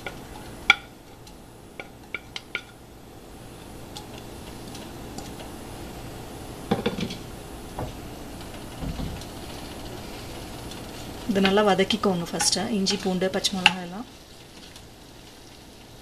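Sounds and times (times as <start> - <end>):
wooden spatula knocking on pan: 8.8 - 9.2.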